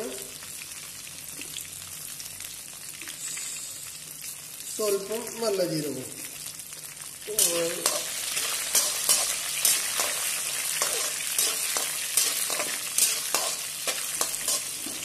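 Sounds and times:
food sizzling in hot oil: 0:00.0 - 0:15.0
spatula scraping and clicking on pan: 0:07.5 - 0:15.0.

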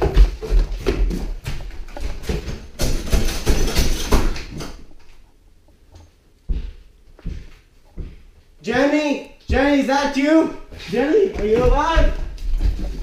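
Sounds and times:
footsteps on wooden stairs: 0:00.0 - 0:04.5, 0:06.0 - 0:13.0
door scraping and rattling: 0:01.9 - 0:04.8.

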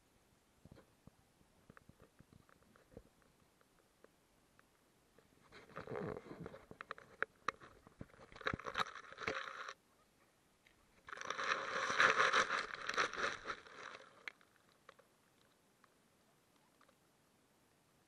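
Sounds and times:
small pet crunching and rustling: 0:05.4 - 0:09.8, 0:10.7 - 0:15.6.

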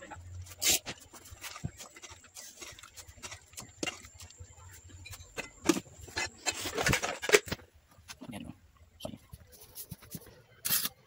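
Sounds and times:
cooking pots knocking and scraping: 0:00.0 - 0:08.3.

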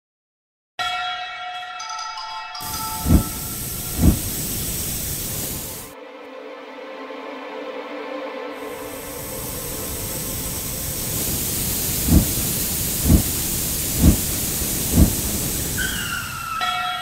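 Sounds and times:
low thumps: 0:02.6 - 0:04.9, 0:12.0 - 0:15.5
rocket thrust hiss: 0:02.6 - 0:05.9, 0:08.7 - 0:16.6.

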